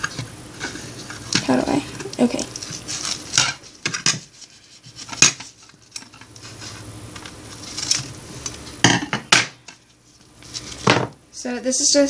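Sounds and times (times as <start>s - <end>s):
tape crackling and clicking: 0.0s - 8.8s.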